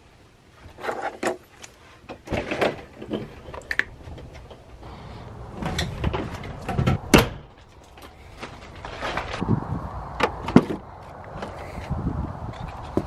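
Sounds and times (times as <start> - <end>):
door opening knocks and clatters: 5.6 - 7.6.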